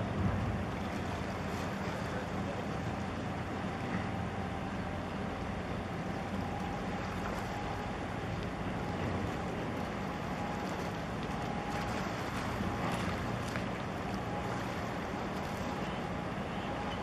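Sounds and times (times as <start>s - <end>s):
wind buffeting microphone: 0.0s - 1.8s
ship engine drone: 0.0s - 17.0s.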